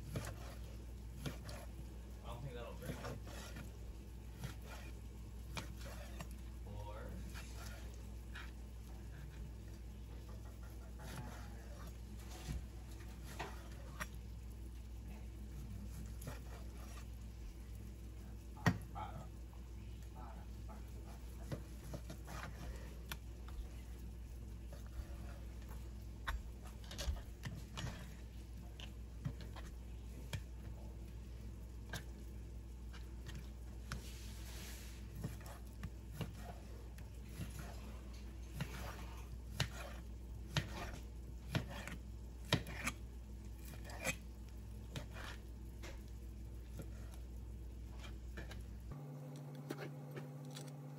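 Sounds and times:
knife slicing ham: 0.0 - 1.8, 2.8 - 6.4, 35.1 - 45.6.

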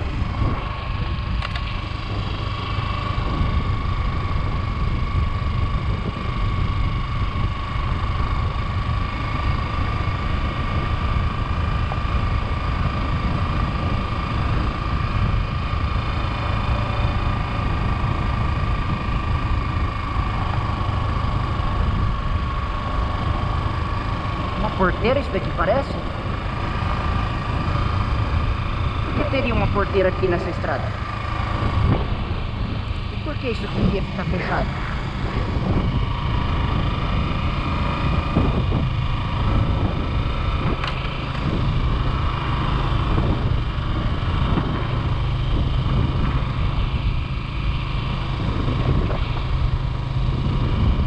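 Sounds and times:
motorcycle engine running: 0.0 - 51.0
thin steady whine: 0.0 - 51.0
wind on microphone: 0.0 - 51.0.

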